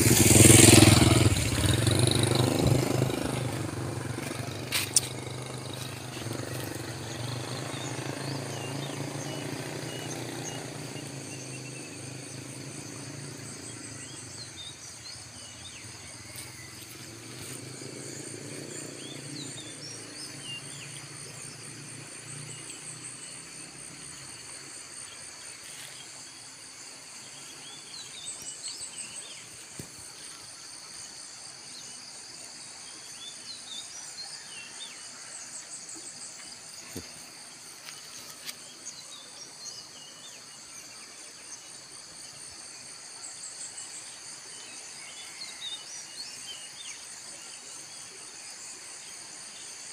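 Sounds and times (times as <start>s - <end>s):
low engine hum: 0.0s - 22.7s
birds chirping: 0.0s - 32.1s
insects droning and trilling: 0.0s - 49.9s.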